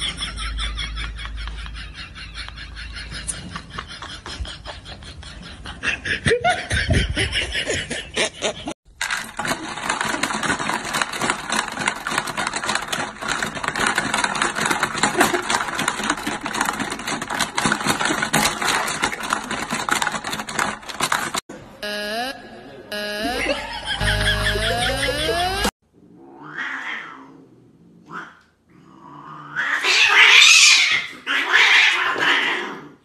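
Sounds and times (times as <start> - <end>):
plastic game pieces clattering: 8.9 - 21.4
marbles rattling: 9.0 - 21.4.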